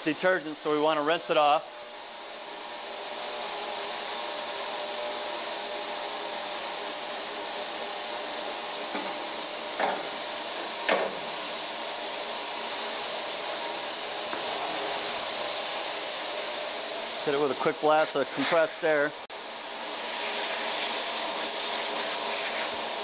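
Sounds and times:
water spray hissing: 6.7 - 19.2, 19.9 - 23.0.

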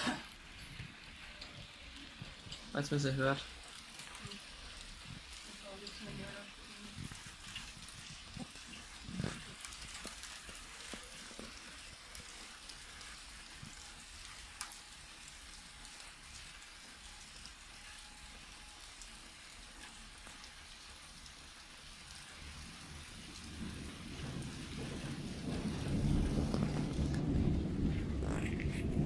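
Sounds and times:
light rain hiss: 0.0 - 29.0
sharp water drips: 0.0 - 29.0
low thunder rumble: 22.2 - 29.0.

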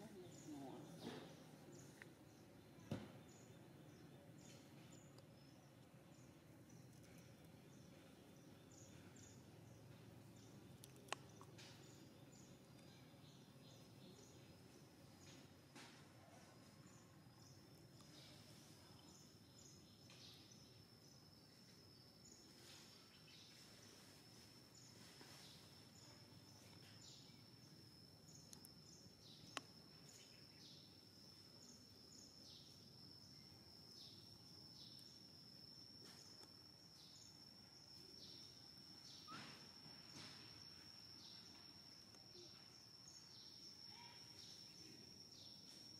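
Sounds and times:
high-pitched insect whine: 11.2 - 45.9.

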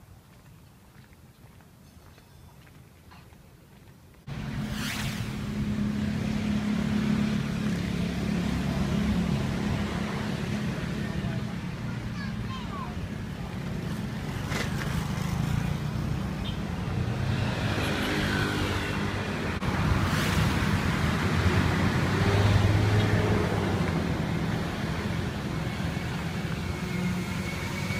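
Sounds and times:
traffic rumble: 0.0 - 27.9
vehicle passing close by: 4.3 - 11.5, 13.8 - 27.9.

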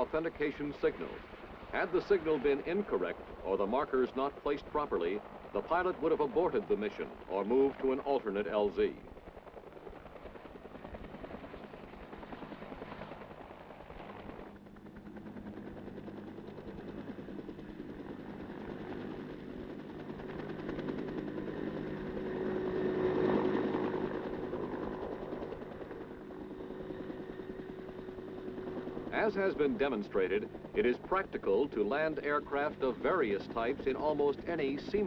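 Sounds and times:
helicopter rotor blade chop: 0.0 - 35.0.

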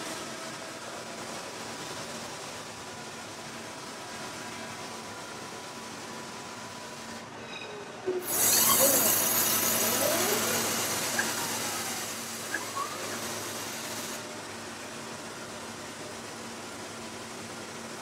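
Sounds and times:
faint sliding squeals: 7.3 - 14.1
gas burner rushing hiss: 8.2 - 14.3.

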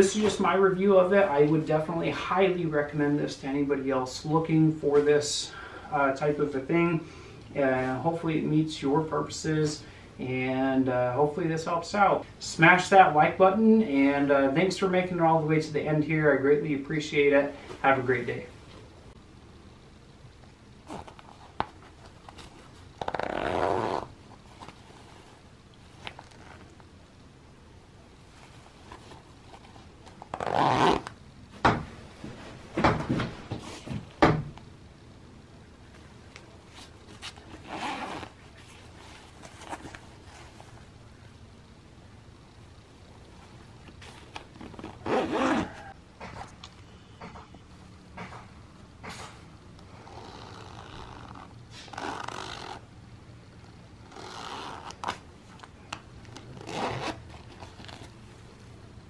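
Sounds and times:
jacket fabric rustle: 0.0 - 2.5, 20.7 - 27.0, 28.1 - 34.1, 35.8 - 41.3, 43.0 - 46.6, 49.1 - 52.9, 54.0 - 58.8
zipper rasping: 20.8 - 26.7, 28.4 - 31.2, 36.7 - 40.5, 44.0 - 46.0, 49.9 - 52.8, 54.0 - 55.2, 56.3 - 58.2
zipper pull clicks: 20.9 - 24.7, 29.6 - 31.2, 49.9 - 52.8, 54.1 - 55.2, 55.9 - 58.1.

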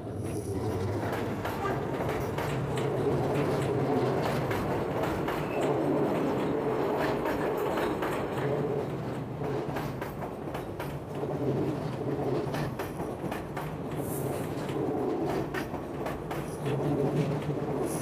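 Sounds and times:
train wheels clicking over rail joints: 0.6 - 18.0.

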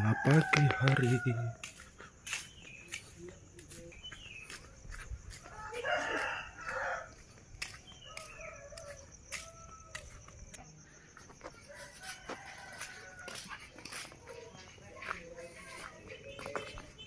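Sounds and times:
rooster crowing: 0.0 - 1.8, 5.4 - 7.2, 8.0 - 10.4, 11.6 - 13.5.

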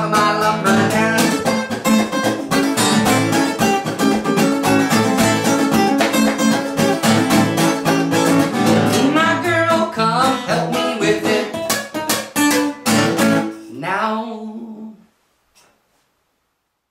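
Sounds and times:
person singing: 0.0 - 2.1, 8.7 - 12.0, 13.4 - 15.1
acoustic guitar strumming: 0.0 - 13.9.

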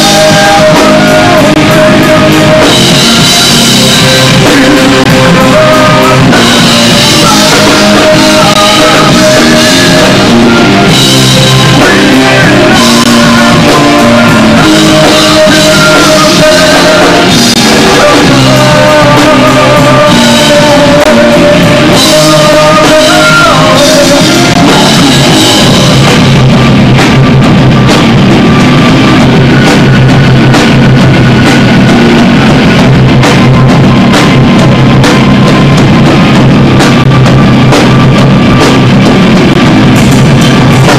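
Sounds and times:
lead singer singing: 0.0 - 26.7
live rock band playing: 0.0 - 40.9.

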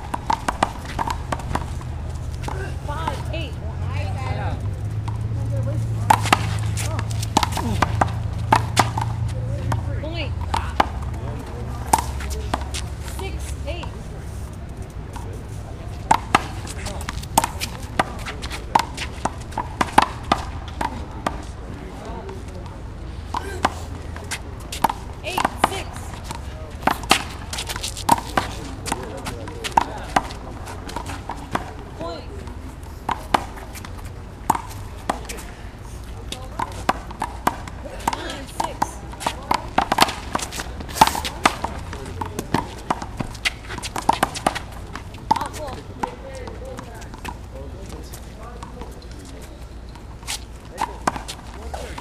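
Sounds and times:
sneaker footsteps scuffing: 27.0 - 29.3.

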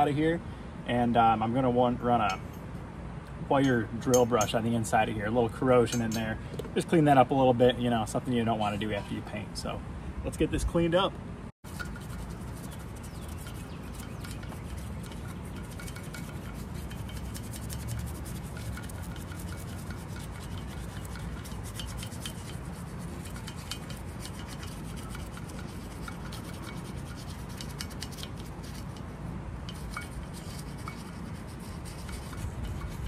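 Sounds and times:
toothbrush scrubbing metal: 11.7 - 29.1, 29.7 - 33.0.

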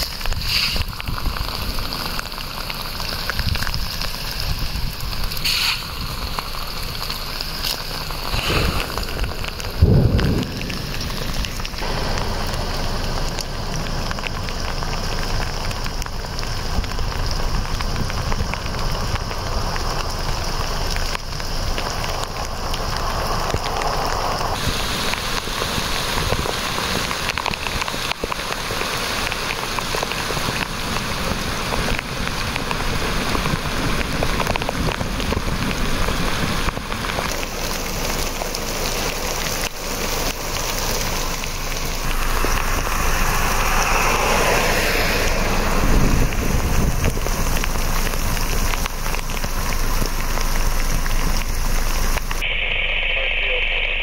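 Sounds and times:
heavy rain and hail: 0.0 - 54.0
low thump: 8.4 - 11.8.

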